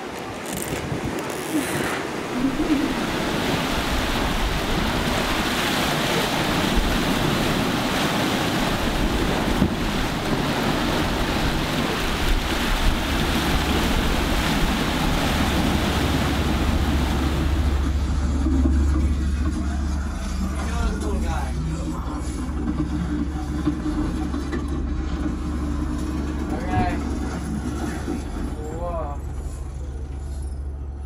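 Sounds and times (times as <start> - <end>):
sea waves rushing past boat: 0.0 - 31.0
wind buffeting microphone: 0.3 - 19.5
low steady rumble: 2.2 - 31.0.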